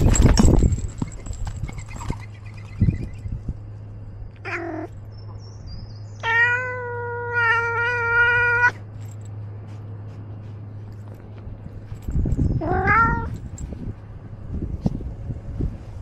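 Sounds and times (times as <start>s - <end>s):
cat meowing: 4.4s - 4.9s, 6.2s - 8.8s, 12.6s - 13.3s.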